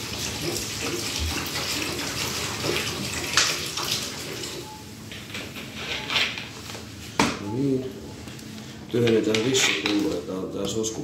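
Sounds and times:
water splashing into urinal: 0:00.0 - 0:04.6.

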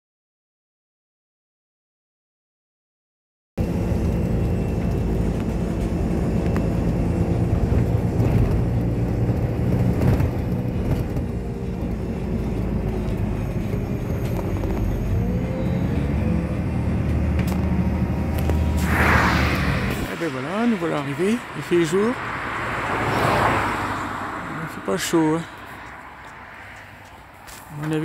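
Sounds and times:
bus engine droning: 0:03.6 - 0:28.0
road noise: 0:03.6 - 0:28.0.

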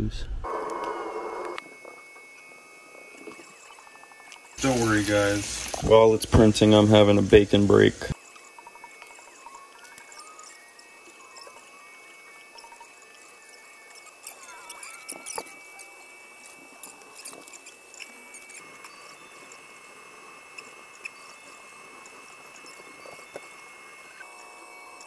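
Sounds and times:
stepper motors whining: 0:00.4 - 0:25.0
small ticks and squeaks: 0:03.1 - 0:04.6, 0:08.2 - 0:25.0.

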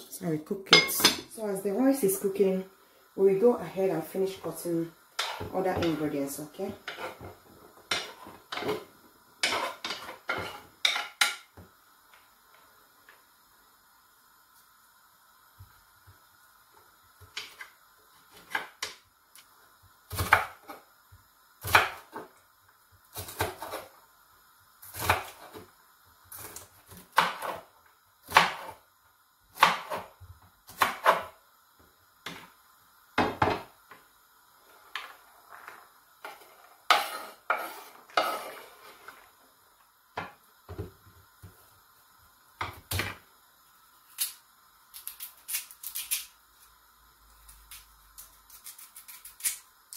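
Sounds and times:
knife chopping on wooden board: 0:27.1 - 0:27.6, 0:28.3 - 0:28.7, 0:29.6 - 0:30.1, 0:30.7 - 0:31.3.

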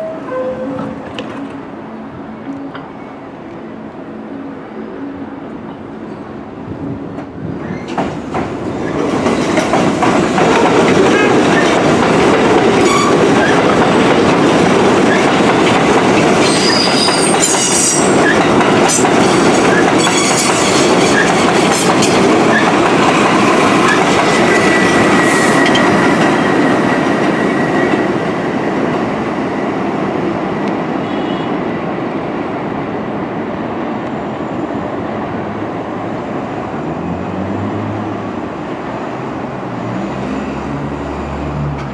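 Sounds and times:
train wheel squeals: 0:12.8 - 0:13.6, 0:16.4 - 0:22.8, 0:23.8 - 0:26.3.

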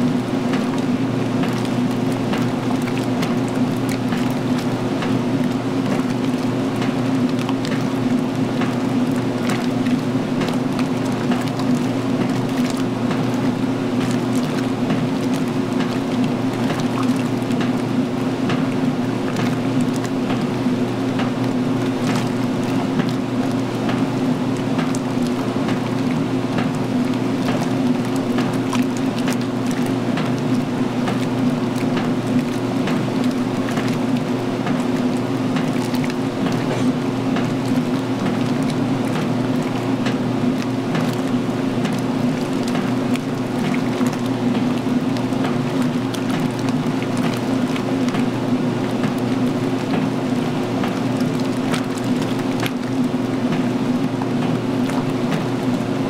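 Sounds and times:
washing machine motor hum: 0:00.0 - 0:56.0
water sloshing in tub: 0:00.0 - 0:56.0.

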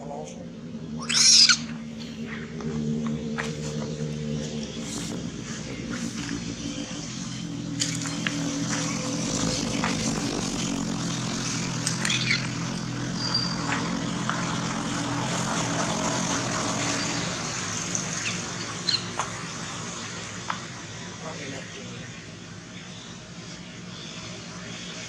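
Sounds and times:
engine drone: 0:00.0 - 0:25.0.

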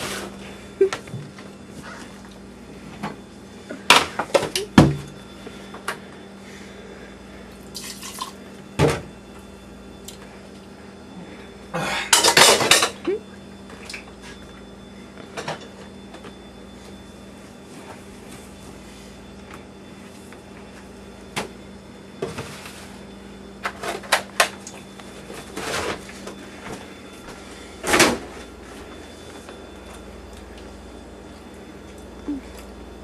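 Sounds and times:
steady low hum: 0:00.0 - 0:33.0
dishes and utensils clattering: 0:12.1 - 0:13.0.

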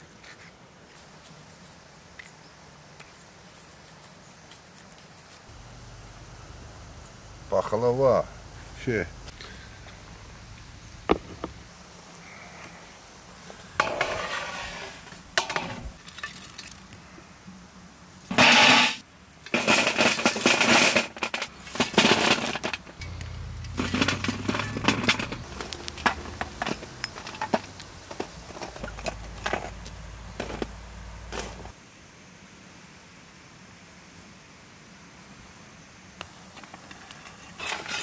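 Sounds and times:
metal shovel scraping charcoal: 0:13.5 - 0:16.4, 0:18.3 - 0:31.8, 0:36.8 - 0:38.0
charcoal clinking on metal lid: 0:18.3 - 0:29.7.

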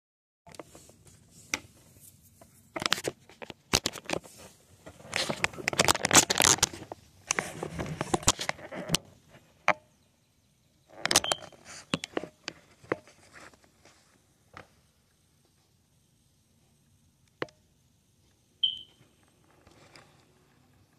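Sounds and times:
crackling handling noise: 0:00.5 - 0:09.8, 0:10.9 - 0:15.6, 0:18.2 - 0:20.9.

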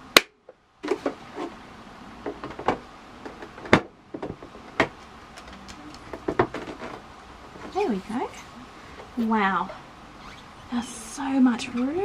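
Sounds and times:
hard plastic knocks and clicks: 0:02.2 - 0:05.5.

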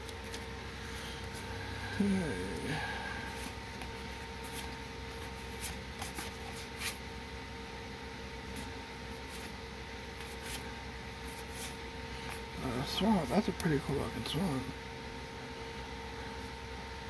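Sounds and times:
cards sliding and flicking: 0:03.4 - 0:07.0.

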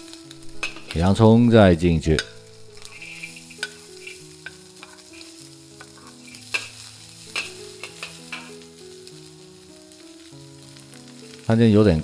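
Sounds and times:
food sizzling in a pan: 0:00.0 - 0:12.0
spatula scraping and knocking pan: 0:02.2 - 0:08.5.

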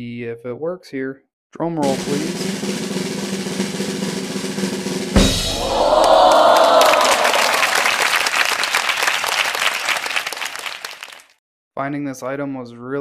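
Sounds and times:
drum roll: 0:01.8 - 0:08.4
cymbal crash: 0:01.9 - 0:06.1
crowd cheering: 0:05.3 - 0:11.3
applause: 0:05.6 - 0:11.4.

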